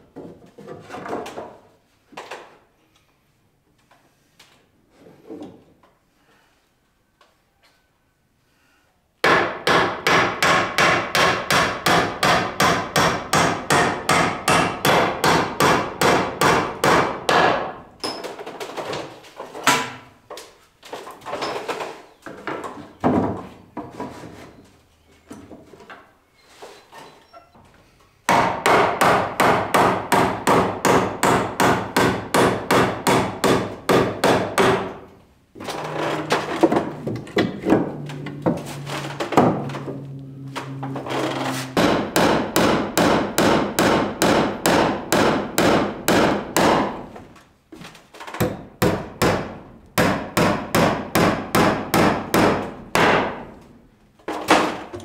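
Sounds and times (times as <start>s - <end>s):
hammer striking wooden boards: 9.2s - 17.8s, 28.3s - 35.2s, 36.3s - 47.2s, 48.4s - 53.7s.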